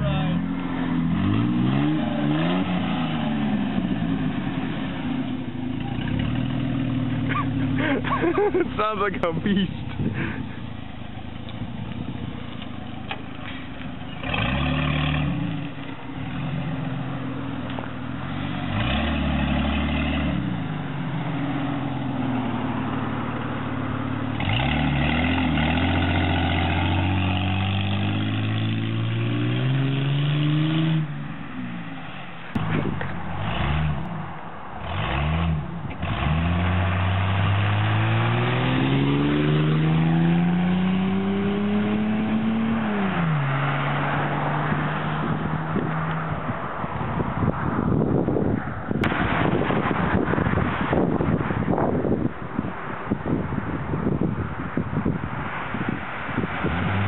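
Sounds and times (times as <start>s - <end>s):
car engine accelerating hard: 0.0s - 31.2s, 34.8s - 48.4s.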